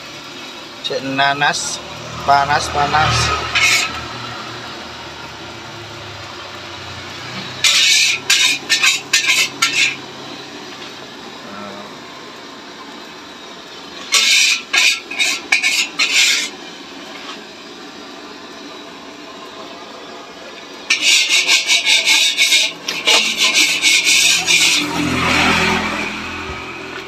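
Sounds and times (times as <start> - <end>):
metal spatula scraping metal pan: 2.7 - 4.1, 7.4 - 10.0, 14.0 - 17.4, 20.9 - 26.4.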